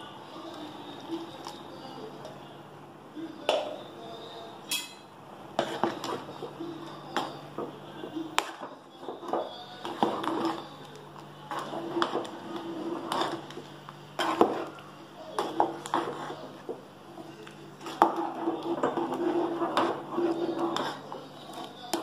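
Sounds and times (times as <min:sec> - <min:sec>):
metal ladle scraping a pot: 0:11.5 - 0:13.6, 0:14.2 - 0:14.8, 0:15.4 - 0:16.6, 0:17.8 - 0:22.0.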